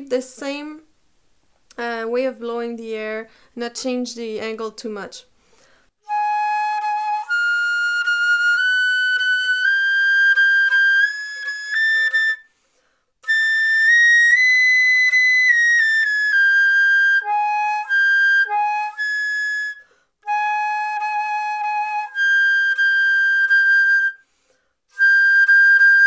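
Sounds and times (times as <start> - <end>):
flute playing long notes: 6.0 - 12.5, 13.2 - 24.2, 24.9 - 26.0.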